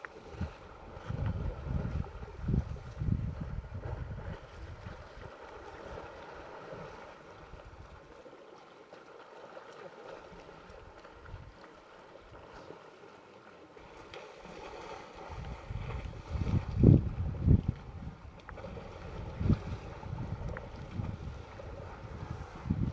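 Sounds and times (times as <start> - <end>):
wind buffeting microphone: 0.3 - 6.0, 15.2 - 22.9.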